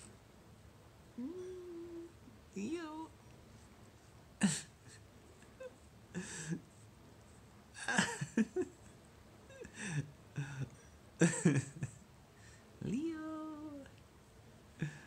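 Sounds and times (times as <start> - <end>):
person's breathy vocal sounds: 14.8 - 15.0.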